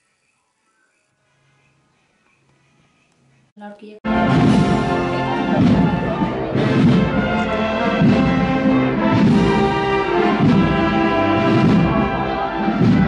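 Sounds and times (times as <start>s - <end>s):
brass band slow march: 4.1s - 13.0s
drum strokes: 4.1s - 13.0s.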